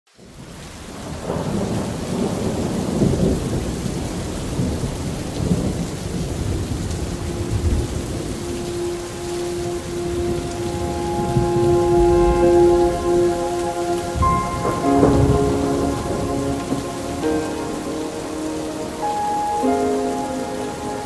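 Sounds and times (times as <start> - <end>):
heavy rain: 0.1 - 21.0
rolling thunder: 1.0 - 21.0
held musical notes: 7.2 - 21.0.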